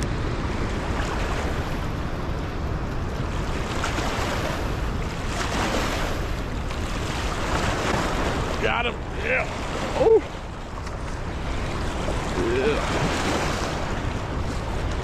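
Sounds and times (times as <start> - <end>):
floodwater churning and rushing: 0.0 - 15.0
wind buffeting the microphone: 0.0 - 15.0.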